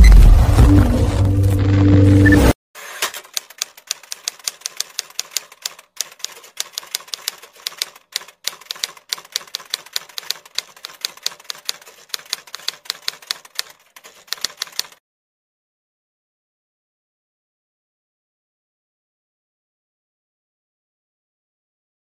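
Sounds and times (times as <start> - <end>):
typewriter keys clacking: 2.9 - 15.0.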